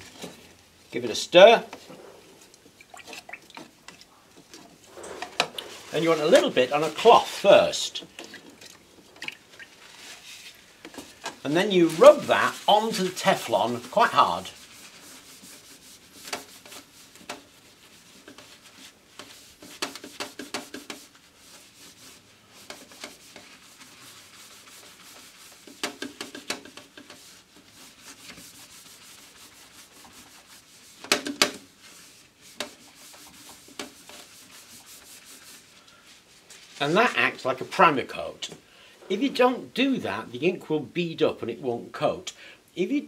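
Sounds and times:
cloth rubbing on heating plate: 0:01.7 - 0:03.0, 0:04.1 - 0:08.5, 0:09.5 - 0:31.0, 0:31.7 - 0:37.2.

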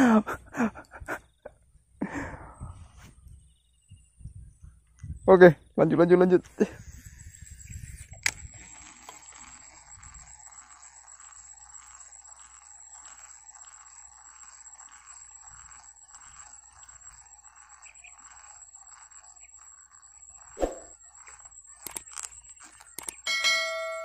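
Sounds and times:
insects calling: 0:00.0 - 0:24.0
sharp click: 0:21.8 - 0:23.2.

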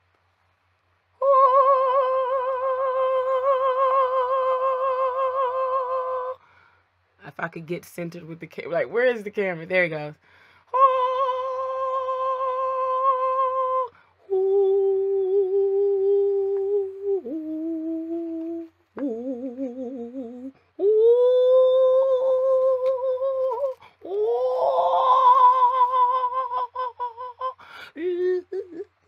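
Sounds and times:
woman singing long held notes: 0:01.2 - 0:06.6, 0:10.1 - 0:29.0.

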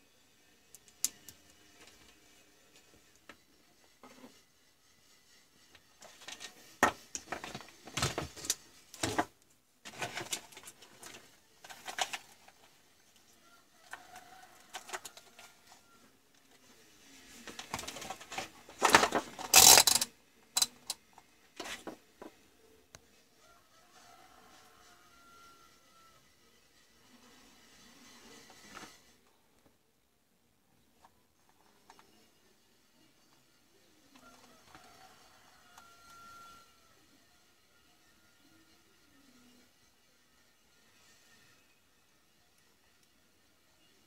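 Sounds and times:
tools clicking and rattling: 0:17.9 - 0:21.0.

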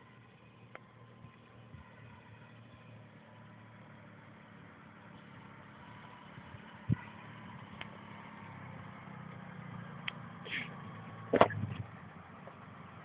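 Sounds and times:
car engine running at low speed: 0:00.0 - 0:13.0
low thump: 0:11.4 - 0:11.9.

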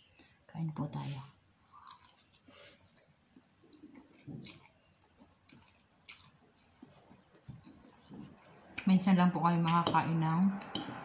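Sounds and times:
faint chewing: 0:01.6 - 0:08.9.

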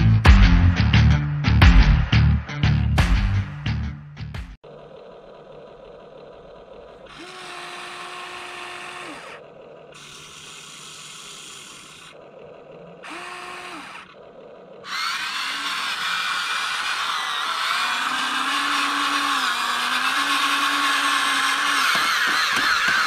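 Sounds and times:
electric motors whirring: 0:04.6 - 0:23.0
loud rough buzzing: 0:04.6 - 0:23.0.

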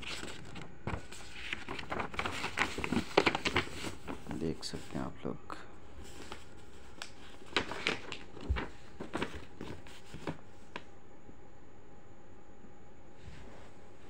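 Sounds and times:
paper rustling and crinkling: 0:00.0 - 0:05.1, 0:05.9 - 0:10.9.

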